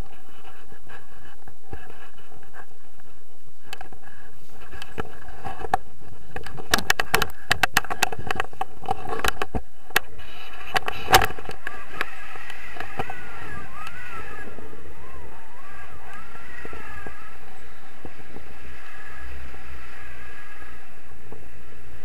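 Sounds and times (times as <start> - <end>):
wind rushing: 10.0 - 22.0.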